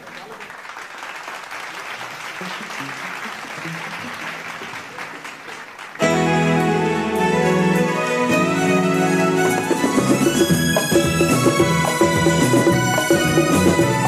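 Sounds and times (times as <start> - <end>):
audience applauding: 0.0 - 14.0
faint instrument notes: 6.0 - 14.0
live band playing: 6.0 - 14.0.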